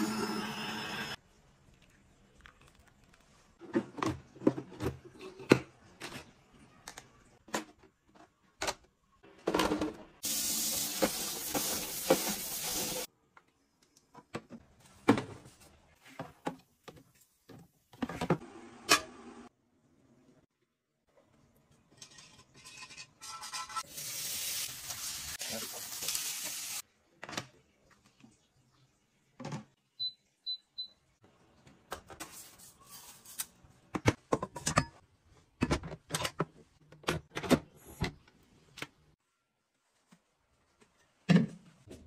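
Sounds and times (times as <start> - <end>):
kitchen items knocking and clicking: 3.6 - 10.2, 33.8 - 38.9
tap spraying water: 10.2 - 13.1.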